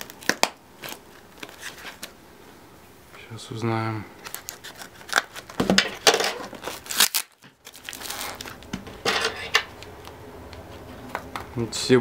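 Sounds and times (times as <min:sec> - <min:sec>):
parcel paper tearing and crinkling: 0:00.0 - 0:02.2, 0:04.2 - 0:08.7.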